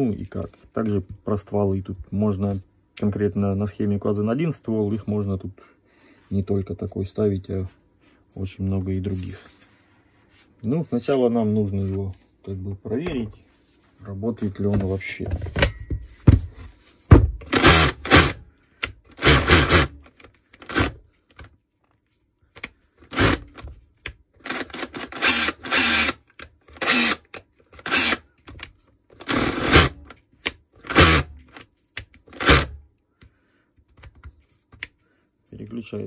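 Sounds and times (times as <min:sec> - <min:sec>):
rotary hammer bursts: 0:32.3 - 0:32.8.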